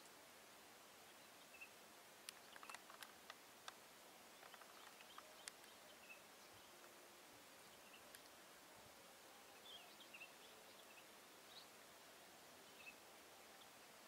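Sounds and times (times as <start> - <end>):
faint outdoor hiss: 0.0 - 14.0
soft clicks: 2.2 - 3.8, 4.4 - 5.8, 8.0 - 8.4.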